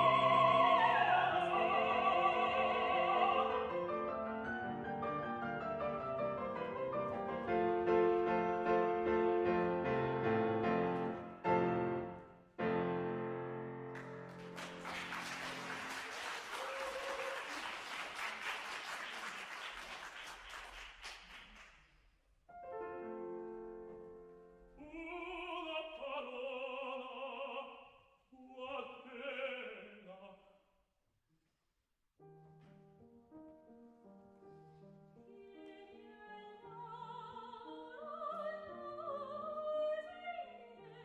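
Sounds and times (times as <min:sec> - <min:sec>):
opera singer singing: 0:00.0 - 0:03.9, 0:24.7 - 0:30.5, 0:35.3 - 0:41.0
piano chords: 0:00.0 - 0:16.0, 0:22.5 - 0:25.4
audience applause: 0:13.9 - 0:21.8.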